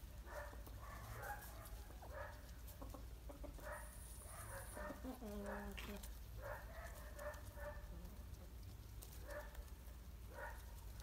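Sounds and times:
chickens clucking: 0.5 - 6.4.

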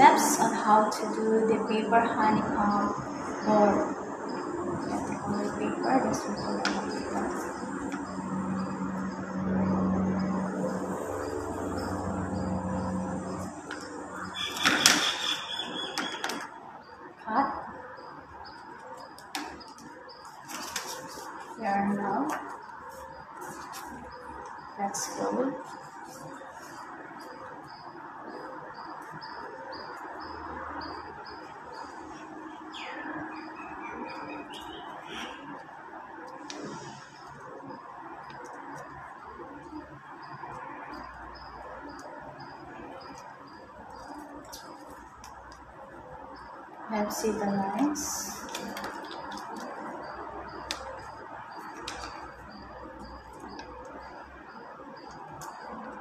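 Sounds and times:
low room hum: 0.0 - 14.5
bird chirping: 1.8 - 22.2, 22.9 - 35.6
paper being folded: 19.2 - 21.6.

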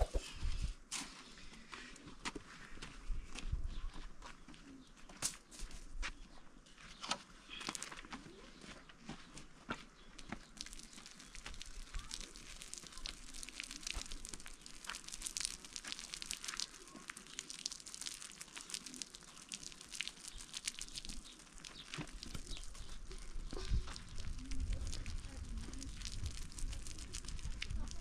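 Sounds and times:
water splashing and trickling on soil: 0.0 - 0.2, 7.5 - 8.4, 10.3 - 28.0.

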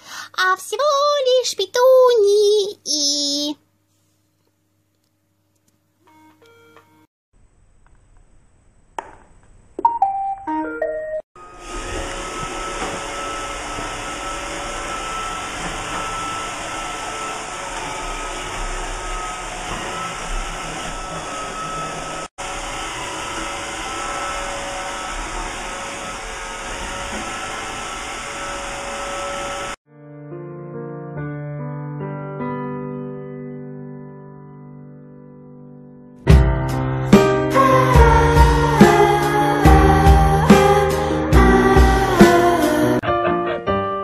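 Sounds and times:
robot vacuum motor running: 11.4 - 29.8.

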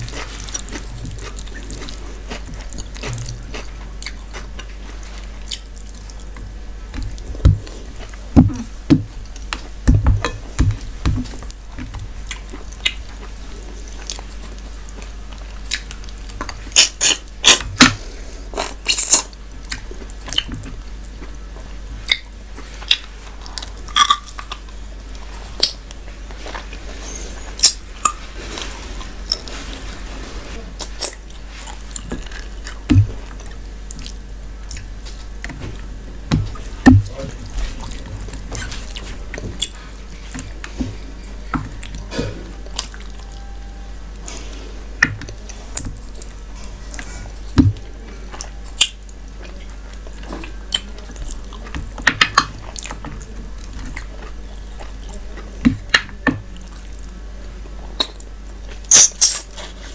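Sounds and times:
chewing and mouth smacks: 0.0 - 8.3, 10.7 - 17.9, 36.4 - 40.8.

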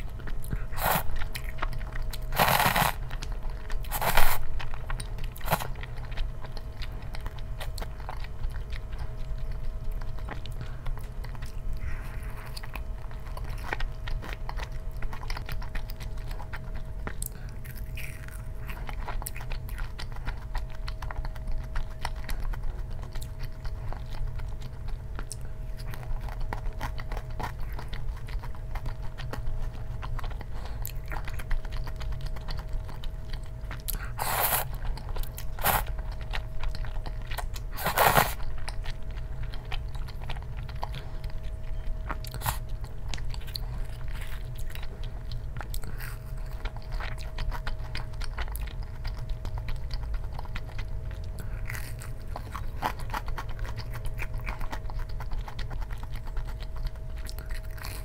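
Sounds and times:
chewing and crunching food: 0.0 - 58.0
steady low hum: 0.0 - 58.0.

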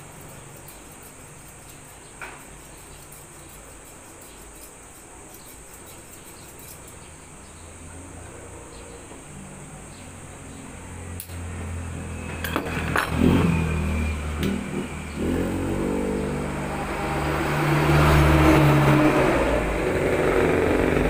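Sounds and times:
steady high whine: 0.0 - 21.0
scissors snipping hair: 0.2 - 7.0.

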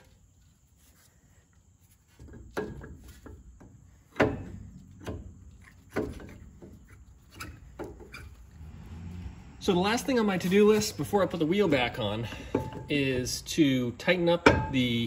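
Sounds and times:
metal brake caliper clunks: 12.2 - 13.1, 14.4 - 15.0.

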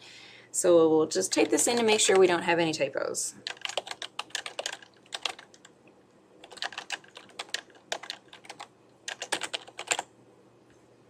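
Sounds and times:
typing on computer keyboard: 3.4 - 5.7, 6.4 - 10.1.

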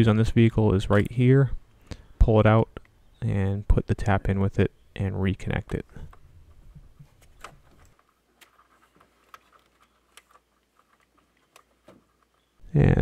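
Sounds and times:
small plastic clicks: 7.2 - 12.5.

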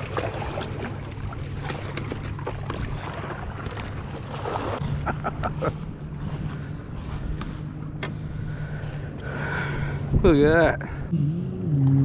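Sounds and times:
boat engines droning: 0.0 - 12.0.

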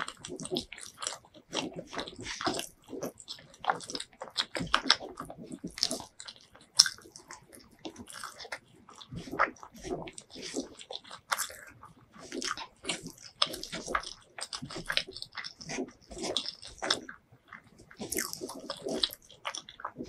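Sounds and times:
person chewing food: 0.0 - 20.0
wet mouth clicks and smacks: 0.0 - 20.0.

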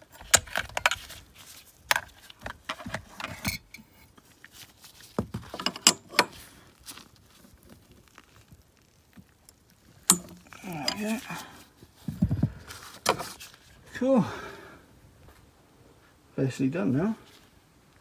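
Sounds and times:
metal spanners clicking and scraping: 10.1 - 11.3.

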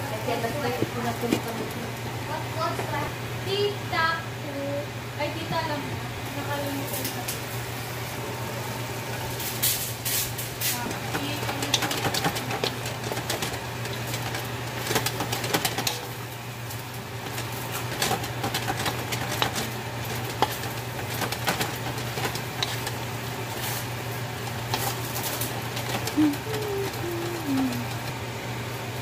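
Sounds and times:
food sizzling: 0.0 - 29.0
steady low hum: 0.0 - 29.0.

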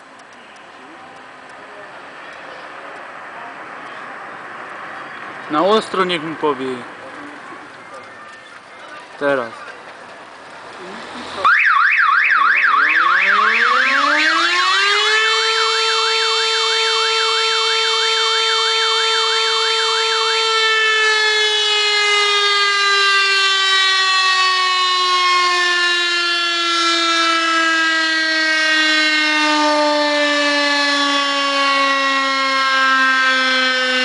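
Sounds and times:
rotor siren wailing: 11.4 - 34.0
fast-warbling high tone: 12.4 - 14.9.

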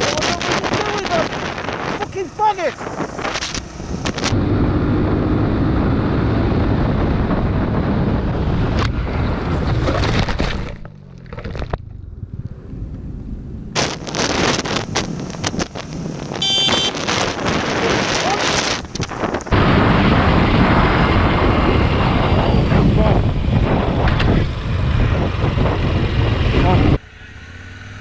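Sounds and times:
wind buffeting microphone: 0.0 - 27.0
motorcycle engine: 0.0 - 28.0
brief high tone: 16.4 - 16.9.

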